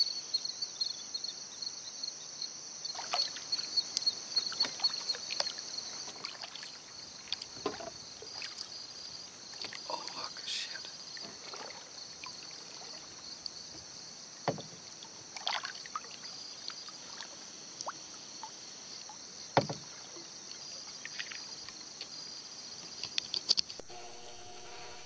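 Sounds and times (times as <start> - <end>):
high insect drone: 0.0 - 25.0
paddle swishing in water: 2.9 - 3.7, 4.4 - 8.7, 11.2 - 13.9
sharp knocks: 14.4 - 14.8.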